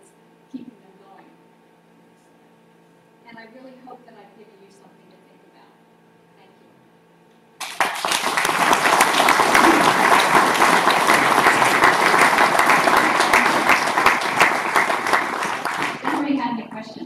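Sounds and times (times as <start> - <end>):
audience applauding: 7.6 - 16.4.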